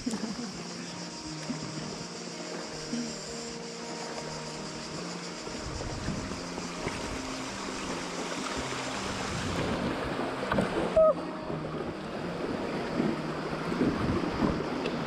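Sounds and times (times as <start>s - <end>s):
river rapids rushing and splashing: 0.0s - 15.0s
wind buffeting microphone: 5.6s - 7.2s, 9.0s - 11.0s, 11.6s - 15.0s.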